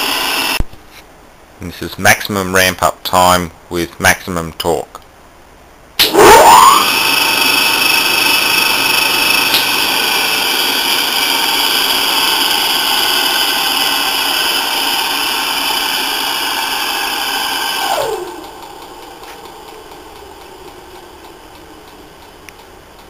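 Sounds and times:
electric motor humming and whining: 6.6s - 21.5s.

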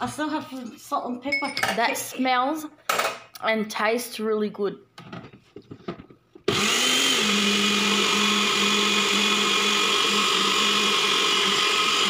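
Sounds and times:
blender motor running: 6.5s - 12.0s.

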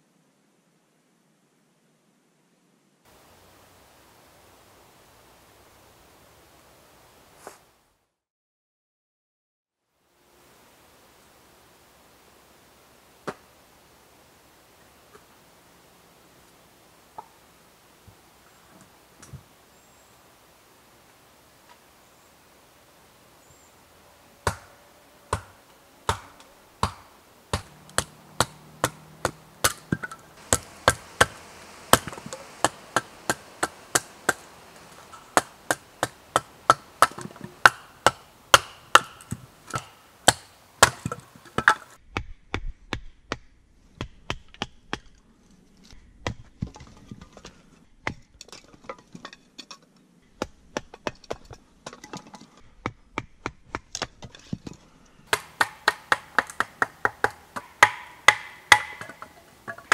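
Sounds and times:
sharp wooden knocks splitting kindling: 25.4s - 42.0s, 55.3s - 59.9s.

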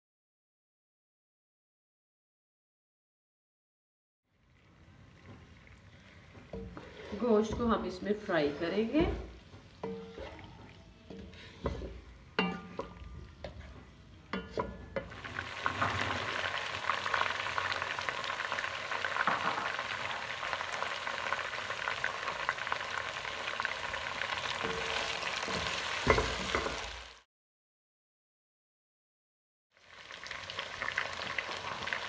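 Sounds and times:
spatula knocking against pot: 9.0s - 10.4s, 11.1s - 15.1s
food sizzling in oil: 15.0s - 27.2s, 29.7s - 32.0s.

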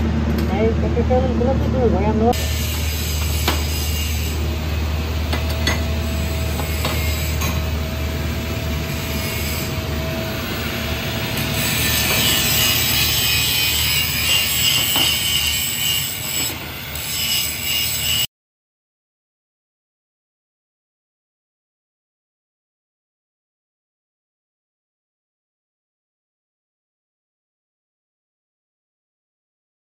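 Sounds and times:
low machine hum: 0.0s - 14.6s
welding hiss: 2.4s - 5.2s, 8.2s - 18.3s.

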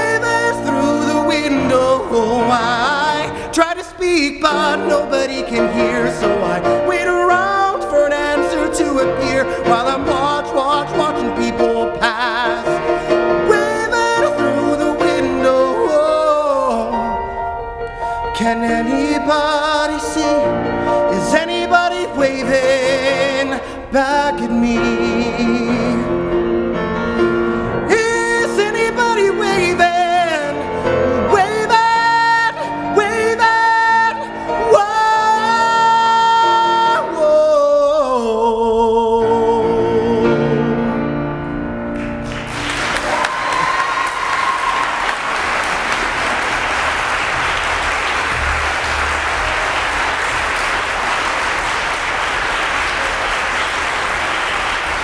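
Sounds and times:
man singing with vibrato: 0.0s - 41.3s
grand piano: 0.0s - 55.0s
audience applauding: 42.0s - 55.0s.

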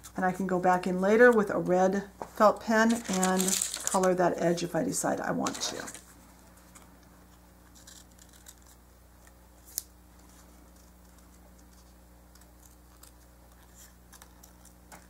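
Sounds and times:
steady low hum: 0.0s - 15.0s
scissors cutting paper: 2.8s - 4.1s, 7.6s - 8.8s, 10.7s - 14.8s.

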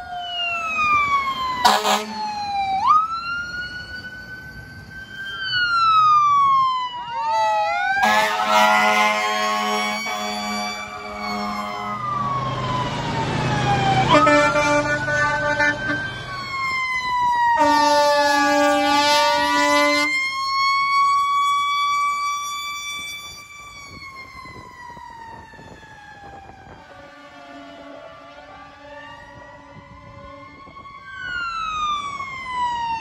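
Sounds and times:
fire truck sirens wailing: 0.0s - 33.0s
fire truck horn blasts: 1.6s - 2.2s, 7.4s - 12.4s, 14.1s - 16.2s, 17.5s - 23.4s, 26.7s - 30.7s.

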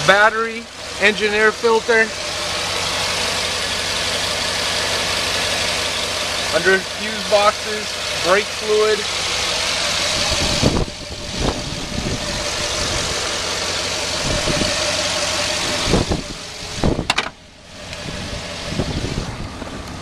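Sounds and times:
car engine idling: 0.0s - 20.0s
sharp clunks: 17.0s - 17.4s.

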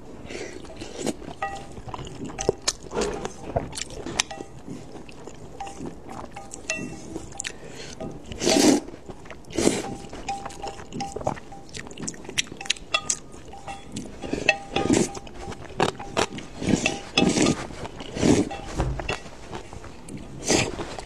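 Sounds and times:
moist chewing: 0.0s - 21.0s
wet noodle slurps: 8.3s - 8.9s, 15.8s - 18.6s
chopsticks clicking on metal bowl: 12.4s - 17.6s.

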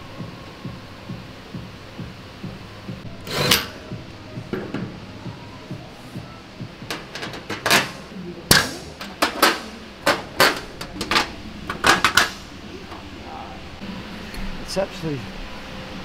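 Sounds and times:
metal parts knocking on steel plate: 6.8s - 12.4s.

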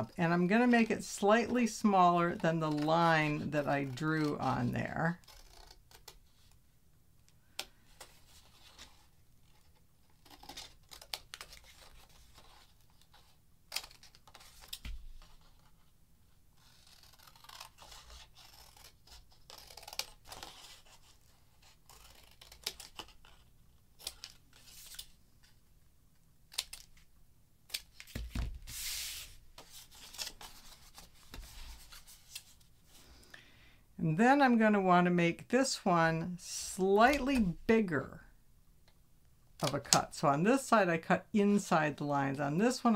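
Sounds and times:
scissors snipping paper: 16.6s - 21.0s, 21.6s - 23.4s
paper rustling: 27.7s - 33.0s.

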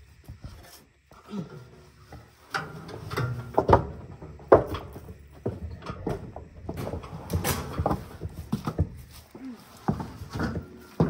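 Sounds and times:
boots stepping on wooden boards: 7.8s - 11.0s.

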